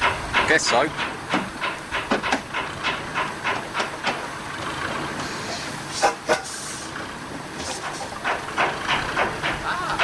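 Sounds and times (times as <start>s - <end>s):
metallic clanks: 0.0s - 6.7s, 7.6s - 10.0s
steady steam hiss: 0.0s - 10.0s
steam engine beats: 0.0s - 10.0s
burst of hissing steam: 5.2s - 7.0s.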